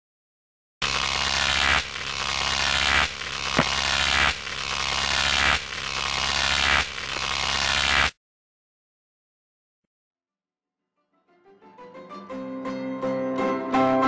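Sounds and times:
pulsing noisy hiss: 0:00.8 - 0:08.1
sharp click: 0:03.5 - 0:03.8.

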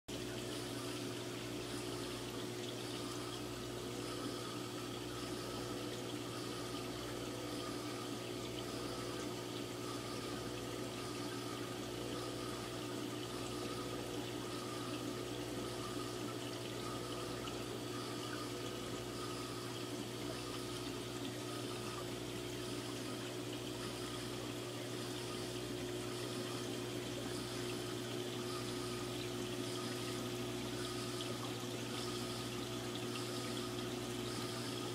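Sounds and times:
low pump hum: 0:00.1 - 0:34.9.

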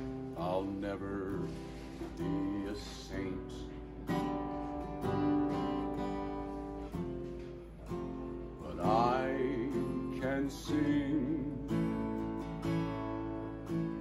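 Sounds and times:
man singing: 0:00.0 - 0:04.3, 0:08.6 - 0:12.3
strummed acoustic guitar chords: 0:00.0 - 0:14.0.

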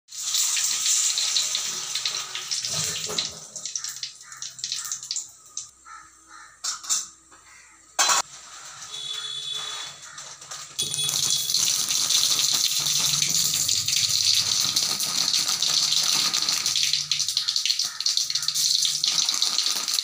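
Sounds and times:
hot oil sizzling: 0:00.1 - 0:05.7, 0:10.8 - 0:20.0.

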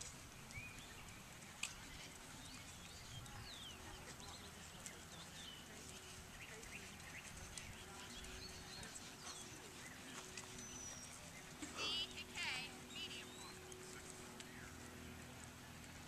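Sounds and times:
birds chirping: 0:00.0 - 0:16.0
horse hoofbeats on sand: 0:00.0 - 0:16.0.

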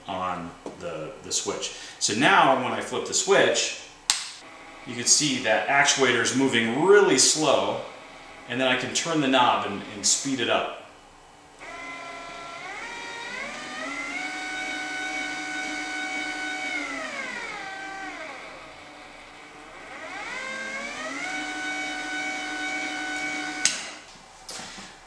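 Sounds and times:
electric motor whining: 0:04.4 - 0:10.2, 0:11.6 - 0:24.0.

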